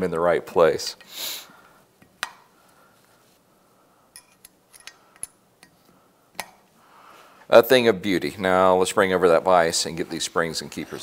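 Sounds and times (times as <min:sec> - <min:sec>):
metal valves clicking: 0:04.1 - 0:05.8.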